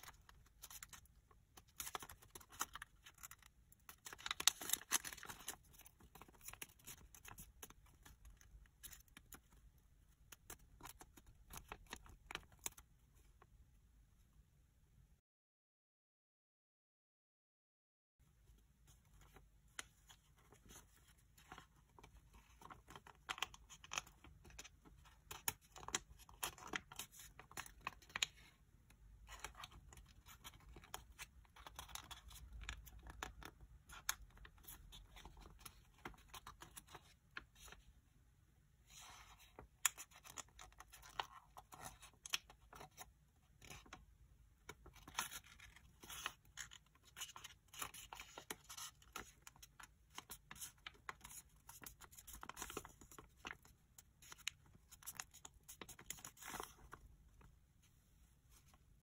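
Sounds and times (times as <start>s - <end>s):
paper rustling and crinkling: 0.0s - 9.7s, 44.6s - 59.0s.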